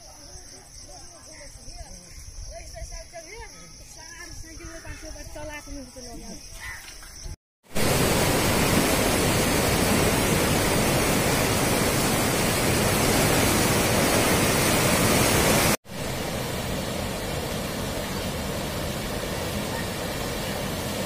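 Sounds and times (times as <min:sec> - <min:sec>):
river water rushing: 0:07.7 - 0:21.0
water swirling around piers: 0:07.7 - 0:21.0.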